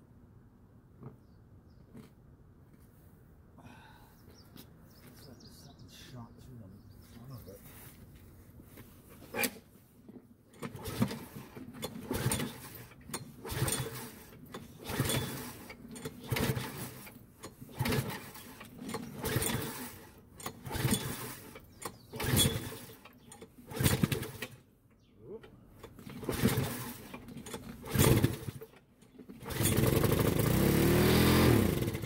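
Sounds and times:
lawn mower engine turning over: 8.7 - 32.0.

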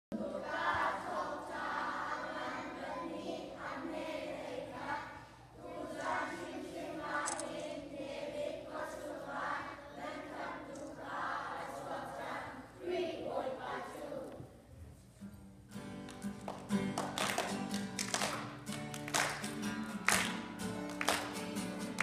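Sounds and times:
children's choir singing: 0.1 - 14.6.

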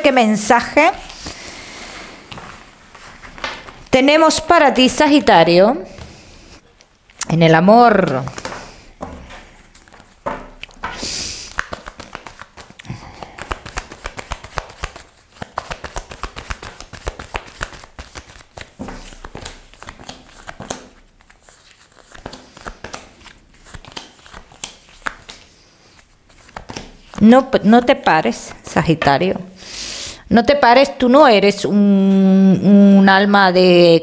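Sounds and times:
cards being shuffled: 2.3 - 3.9, 8.0 - 29.4.

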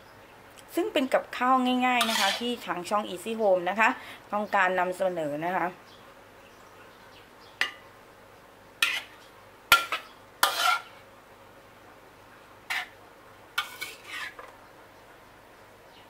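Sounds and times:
metal spatula scraping ceramic plate: 2.0 - 2.6, 8.8 - 11.0, 12.7 - 13.0, 13.6 - 14.5.

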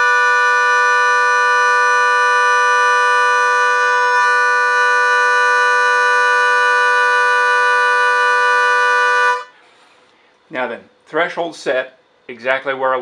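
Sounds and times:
harmonica holding a chord: 0.0 - 9.6.

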